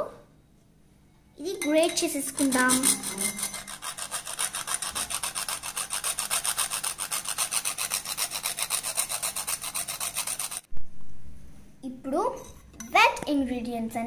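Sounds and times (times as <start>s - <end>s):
nutmeg rasping on a grater: 2.3s - 10.7s.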